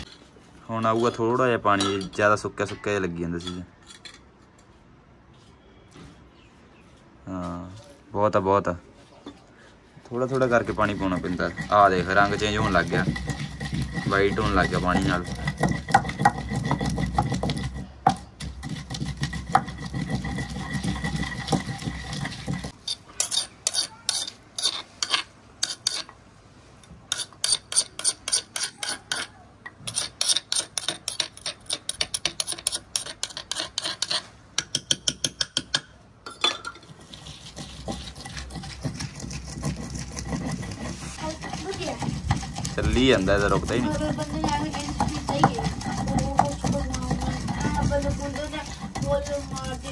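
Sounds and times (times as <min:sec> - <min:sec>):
wooden pestle knocking in mortar: 0:10.5 - 0:22.8, 0:34.6 - 0:35.9, 0:37.6 - 0:49.9.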